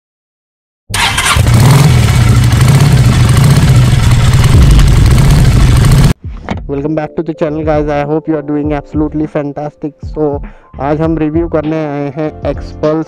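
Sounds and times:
engine running: 0.9 - 6.2.

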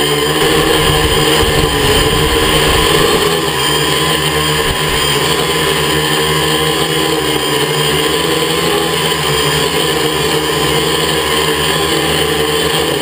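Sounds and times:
drone propellers whining: 0.1 - 7.1.

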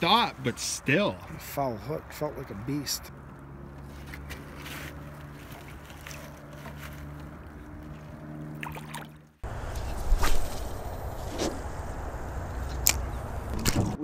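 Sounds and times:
fish splashing into water: 8.5 - 9.2
low rumble: 9.4 - 14.0
steady low hum: 9.4 - 14.0.

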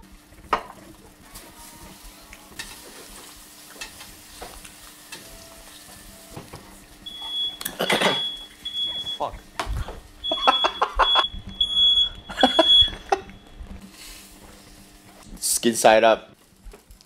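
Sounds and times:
fish sizzling in butter in a pan: 0.1 - 6.2
smoke alarm beeping: 7.0 - 9.4, 10.2 - 13.6.

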